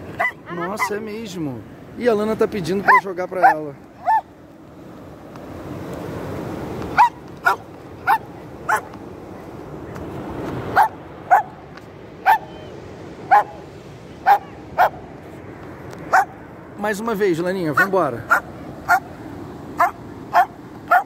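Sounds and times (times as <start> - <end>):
surf washing in: 0.0 - 21.0
dog barking: 0.2 - 1.0, 2.8 - 4.3, 7.0 - 8.9, 10.8 - 11.5, 12.2 - 12.5, 13.3 - 13.6, 14.2 - 15.0, 16.1 - 16.4, 17.8 - 19.1, 19.8 - 21.0.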